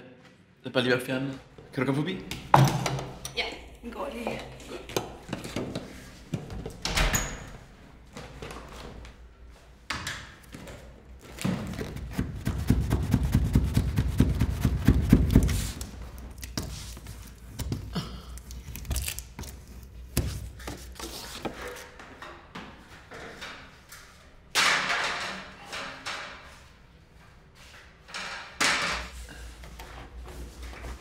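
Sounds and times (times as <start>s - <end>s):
knocking and thumping: 11.4s - 15.6s.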